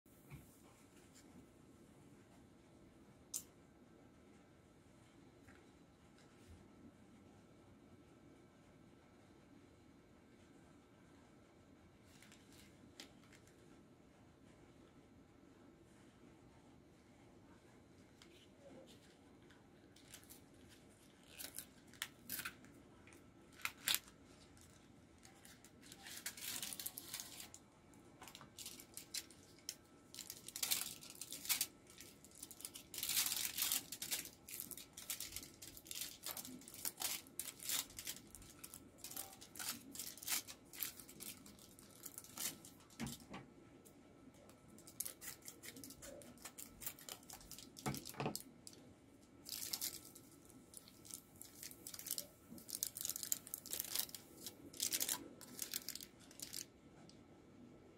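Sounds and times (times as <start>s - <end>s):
foil crinkling and rustling: 20.0s - 27.6s, 28.2s - 43.3s, 44.8s - 48.5s, 49.4s - 56.7s.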